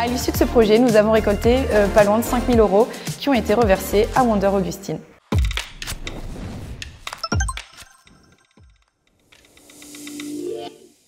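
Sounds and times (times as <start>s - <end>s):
outro music with ticking beat: 5.3s - 6.2s, 6.8s - 10.3s.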